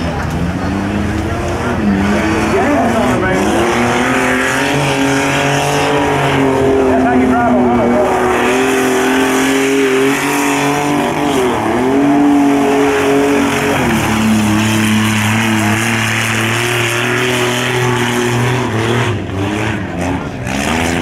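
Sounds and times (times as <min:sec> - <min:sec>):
truck engine running hard: 0:00.0 - 0:21.0.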